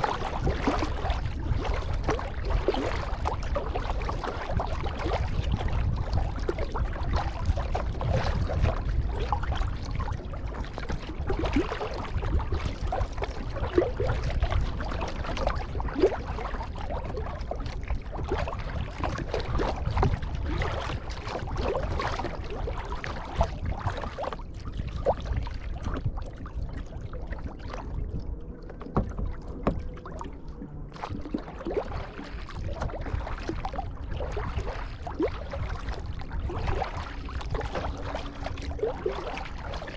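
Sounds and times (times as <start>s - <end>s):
paddle splashing through water: 0.0s - 39.9s
steady low rumble: 0.0s - 39.9s.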